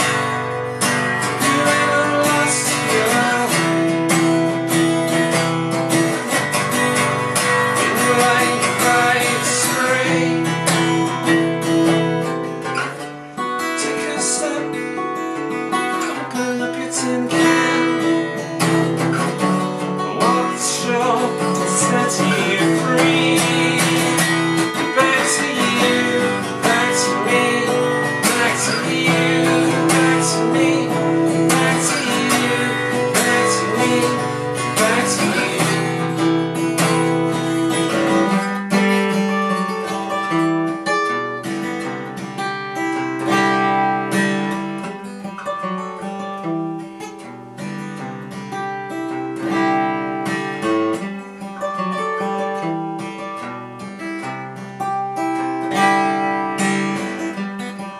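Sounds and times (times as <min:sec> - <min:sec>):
man singing: 0:00.0 - 0:39.4
acoustic guitar: 0:00.0 - 0:57.9.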